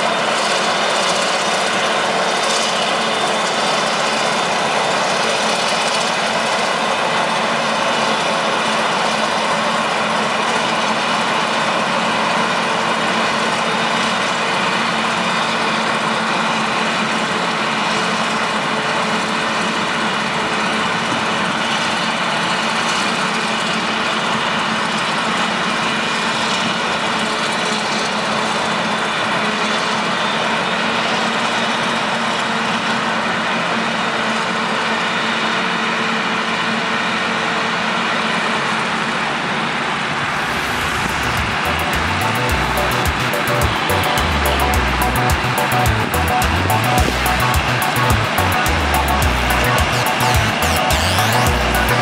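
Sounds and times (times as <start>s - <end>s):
engine running under load: 0.0s - 52.0s
high whine: 40.0s - 52.0s.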